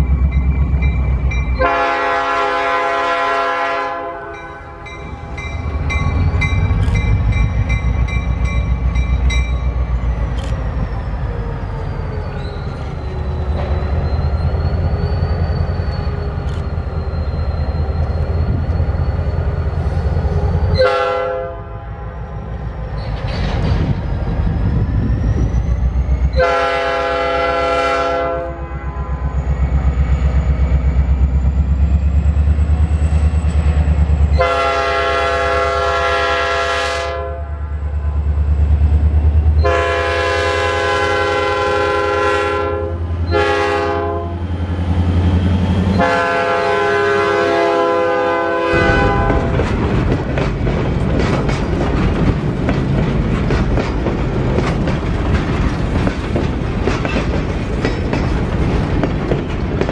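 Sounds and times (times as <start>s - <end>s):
locomotive horn blasts: 1.6s - 5.1s, 20.8s - 22.0s, 26.4s - 29.3s, 34.3s - 37.8s, 39.6s - 44.4s, 46.0s - 49.7s
freight car wheels clacking on rails: 49.1s - 59.9s.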